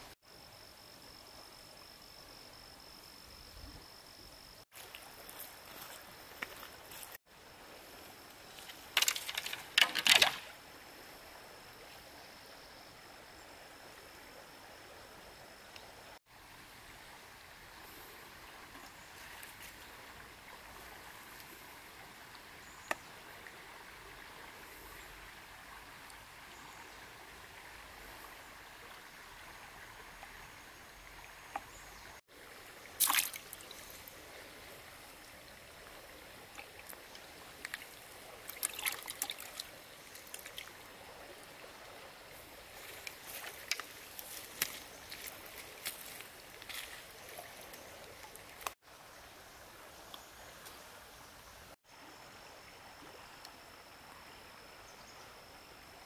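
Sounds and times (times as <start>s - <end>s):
flowing river water: 4.7s - 56.0s
sharp splashes and knocks: 8.7s - 10.6s, 33.0s - 33.8s, 36.5s - 40.7s, 42.8s - 47.4s.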